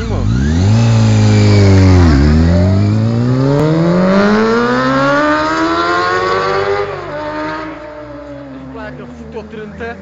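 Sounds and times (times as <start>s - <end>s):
motorcycle engine accelerating hard: 0.0s - 10.0s.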